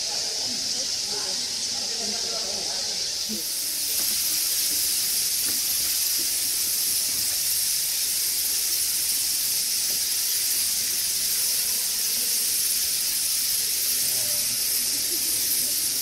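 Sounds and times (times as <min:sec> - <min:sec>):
steady high-pitched hiss: 0:00.0 - 0:16.0.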